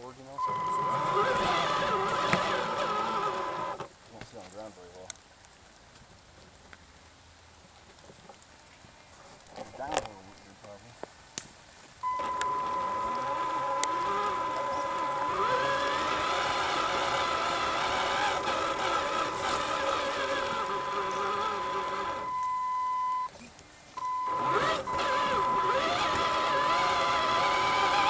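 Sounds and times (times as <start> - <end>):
electric motor whine: 0.4 - 3.9, 12.0 - 23.3, 24.0 - 28.0.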